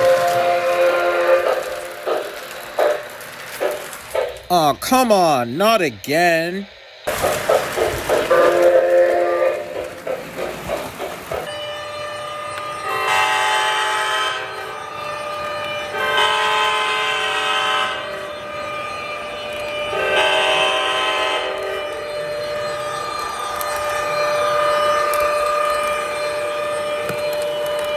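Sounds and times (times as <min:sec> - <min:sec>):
model train horn blasts: 0:00.0 - 0:02.2, 0:08.3 - 0:09.9, 0:11.5 - 0:22.6
model steam locomotive chuffing: 0:00.0 - 0:27.9.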